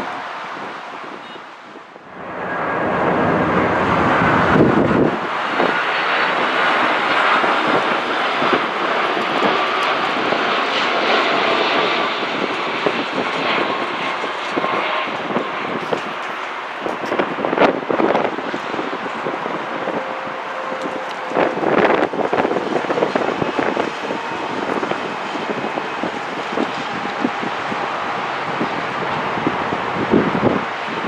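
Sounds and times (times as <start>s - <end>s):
jet engines rushing with whine: 0.0s - 31.0s.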